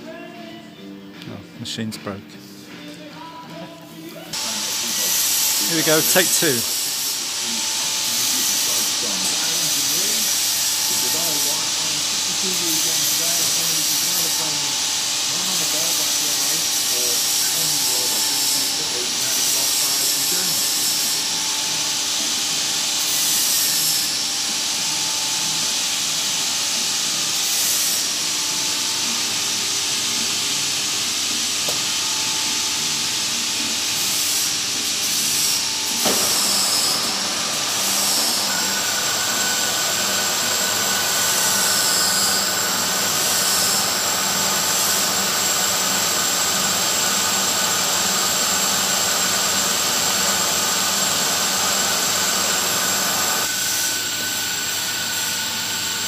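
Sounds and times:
lathe running: 0:04.3 - 0:56.0
abrasive hissing on spinning metal: 0:04.4 - 0:22.4, 0:26.7 - 0:54.4
steady whine: 0:28.2 - 0:47.0.

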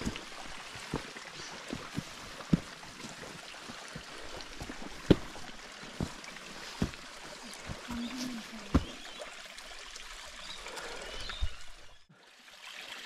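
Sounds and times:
waterfall rushing: 0:00.0 - 0:09.6.

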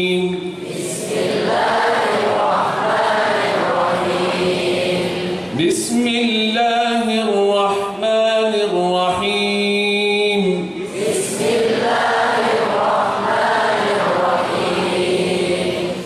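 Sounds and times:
man reciting through microphone: 0:00.0 - 0:01.0, 0:05.5 - 0:11.0
congregation chanting in unison: 0:00.0 - 0:16.0.

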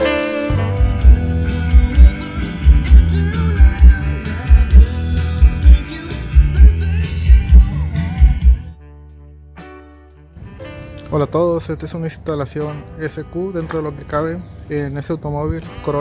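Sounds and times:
rock song through car speakers: 0:00.0 - 0:09.8
heavy bass kick drum: 0:00.8 - 0:08.7.

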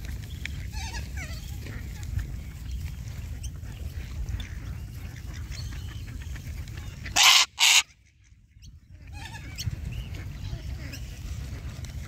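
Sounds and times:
goose honking: 0:07.0 - 0:07.9.

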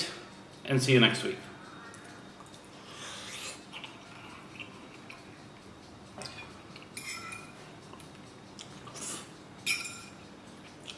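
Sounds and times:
cutlery clinking on plate: 0:06.2 - 0:07.6, 0:09.7 - 0:10.2.

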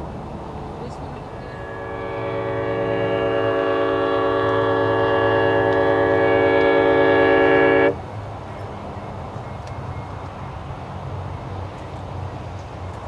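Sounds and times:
locomotive air horn chord: 0:01.3 - 0:08.0.

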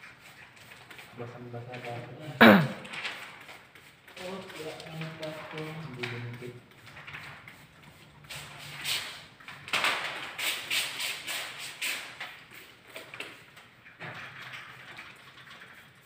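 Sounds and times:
spray bottle squirting water: 0:00.0 - 0:01.2, 0:01.8 - 0:06.0, 0:06.7 - 0:13.8.

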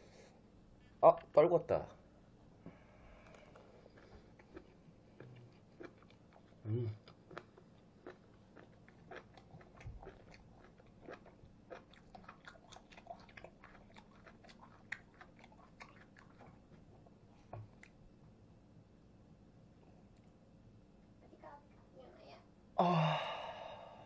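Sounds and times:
faint close-up chewing: 0:03.1 - 0:18.4.

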